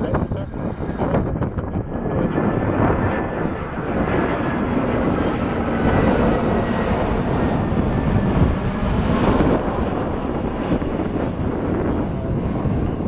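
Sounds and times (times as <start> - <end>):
jet engines roaring overhead: 0.0 - 13.0.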